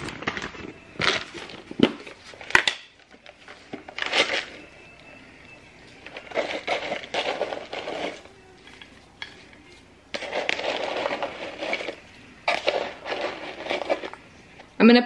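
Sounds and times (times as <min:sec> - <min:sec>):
fried onions rattling: 0:10.1 - 0:14.3.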